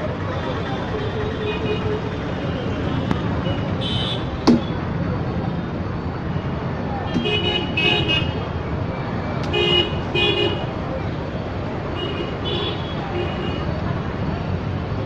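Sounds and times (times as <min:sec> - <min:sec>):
road traffic rumble: 0:00.0 - 0:15.0
vehicle horns tooting: 0:01.3 - 0:04.8.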